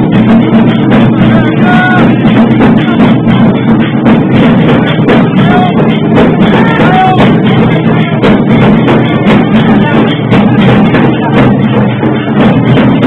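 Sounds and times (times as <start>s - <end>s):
procession drums beating fast: 0.0s - 13.0s.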